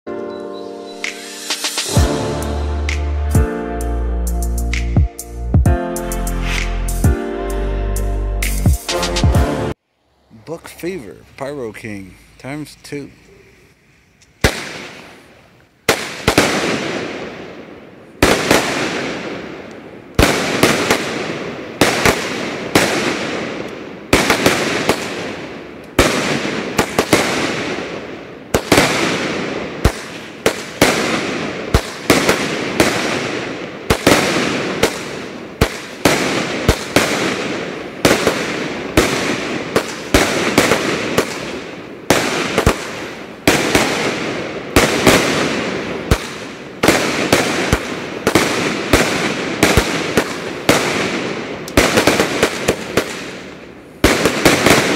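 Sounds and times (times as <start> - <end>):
firework break reports: 10.3 - 13.3.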